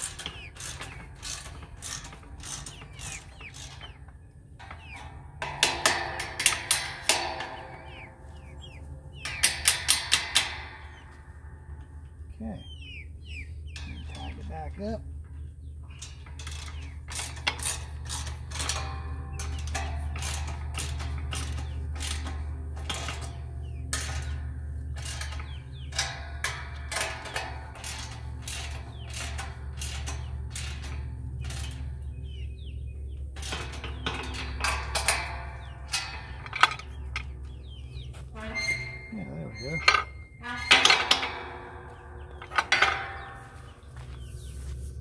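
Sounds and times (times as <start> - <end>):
ratchet wrench clicking: 0.0 - 3.8.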